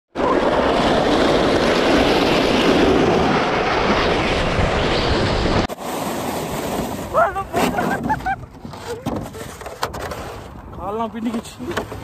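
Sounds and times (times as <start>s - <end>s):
wind rushing: 0.2s - 8.6s
sled scraping over icy snow: 5.7s - 12.0s.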